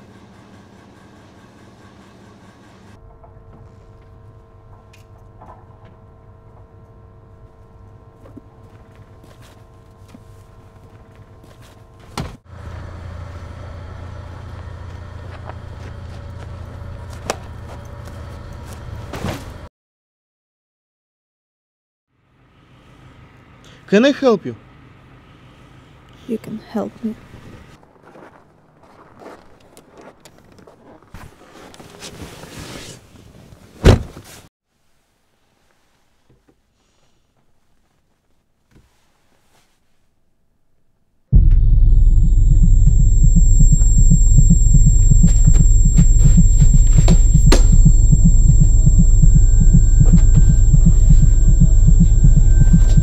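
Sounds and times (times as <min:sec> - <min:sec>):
electrical hum: 0:41.3 - 0:53.0.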